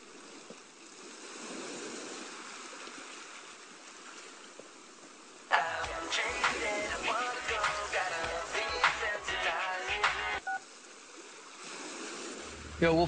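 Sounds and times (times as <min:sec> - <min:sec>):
ocean surf: 0:05.2 - 0:13.0
music with deep beat: 0:05.8 - 0:10.4.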